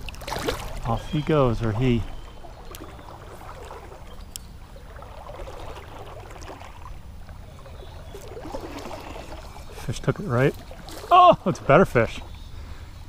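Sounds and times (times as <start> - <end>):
creek water sloshing around legs: 0.0 - 13.0
faint ticks: 2.6 - 2.9, 4.1 - 4.5.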